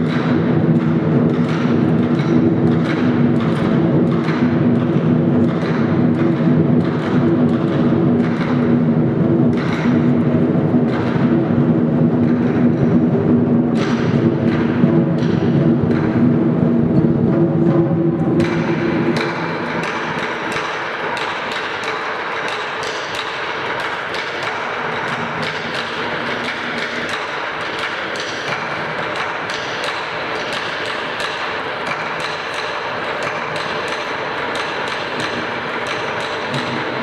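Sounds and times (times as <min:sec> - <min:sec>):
music with low booming tones: 0:00.0 - 0:21.3
rapid drum strikes: 0:00.0 - 0:37.0.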